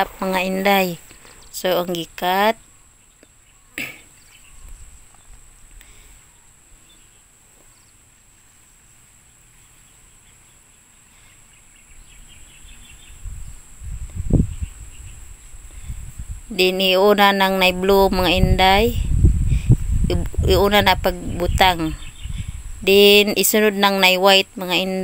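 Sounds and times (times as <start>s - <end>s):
insect hum: 0.0s - 25.0s
faint bird chirps: 0.8s - 8.0s, 9.2s - 16.0s, 21.3s - 23.2s.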